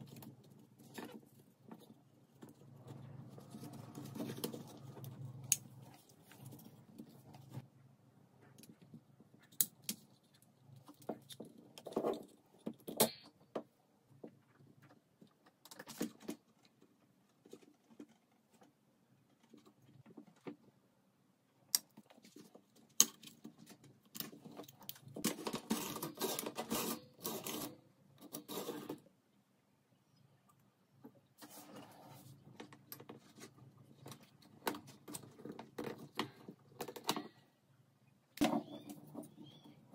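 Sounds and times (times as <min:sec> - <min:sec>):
rustling and scraping: 0:00.0 - 0:07.8, 0:22.1 - 0:29.1, 0:31.2 - 0:37.5.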